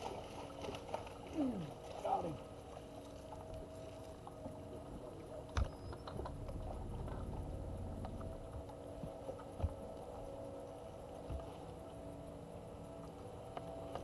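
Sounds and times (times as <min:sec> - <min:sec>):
electric trolling motor hum: 0:00.0 - 0:14.0.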